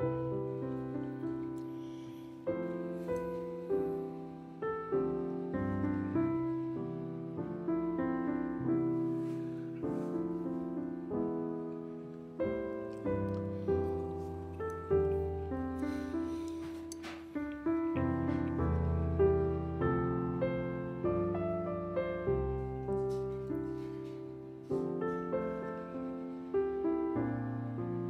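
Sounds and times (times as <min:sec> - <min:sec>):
gentle solo piano: 0:00.0 - 0:28.0.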